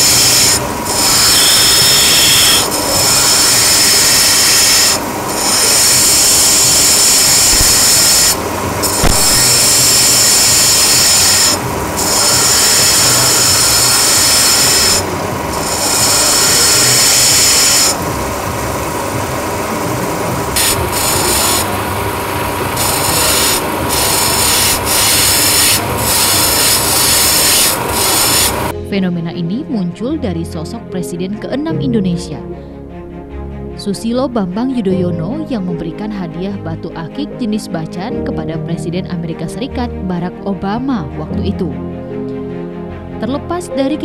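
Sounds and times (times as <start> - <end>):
stone grinding hiss: 0.0 - 28.7
machine whine: 0.0 - 28.8.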